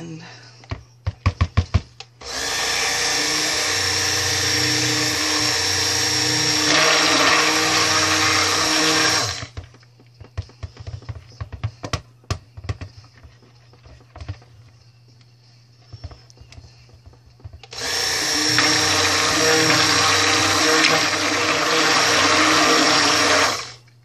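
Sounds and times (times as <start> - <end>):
stick blender motor whine: 2.2 - 9.6, 17.6 - 23.8.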